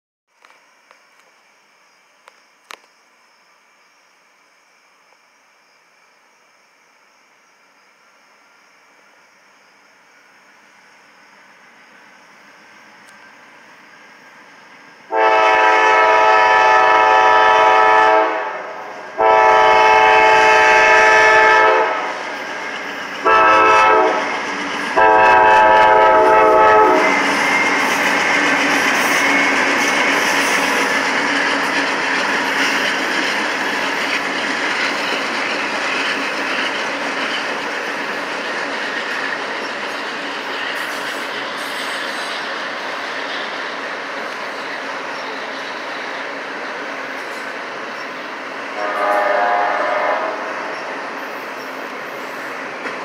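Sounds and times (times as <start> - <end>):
train rumbling past: 5.9 - 53.0
locomotive air horn: 15.1 - 22.2, 23.2 - 24.3, 24.9 - 27.2, 48.7 - 50.6.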